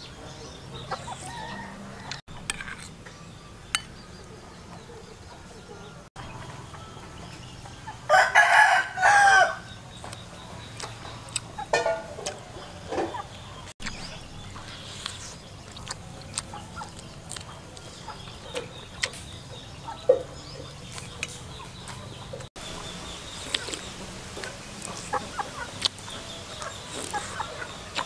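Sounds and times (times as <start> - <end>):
chickens clucking: 0.0 - 2.5, 3.7 - 28.0
person eating mouth smacks: 23.4 - 23.8.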